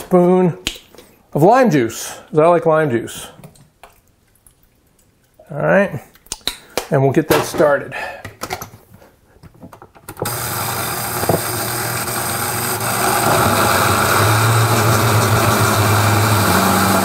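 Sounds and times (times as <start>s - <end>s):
blender running: 10.2s - 17.0s.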